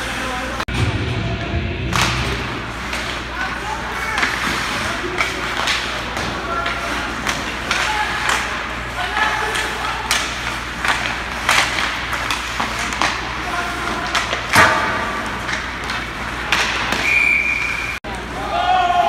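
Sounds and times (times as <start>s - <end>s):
hockey stick hitting puck: 1.9s - 3.3s, 4.0s - 17.2s
players shouting: 18.1s - 19.0s.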